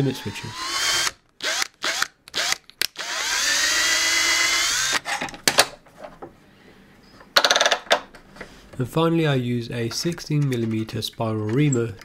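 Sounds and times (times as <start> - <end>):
power drill boring metal: 0.0 - 5.0.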